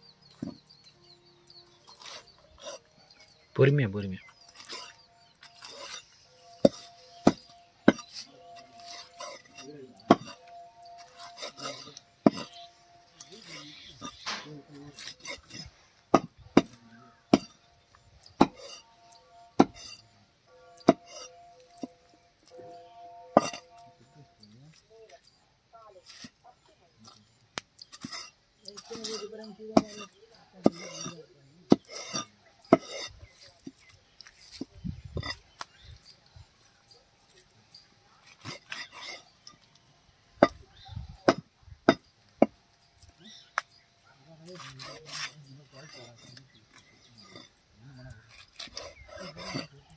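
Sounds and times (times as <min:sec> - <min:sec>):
knife chopping on wooden block: 0:18.4 - 0:18.7.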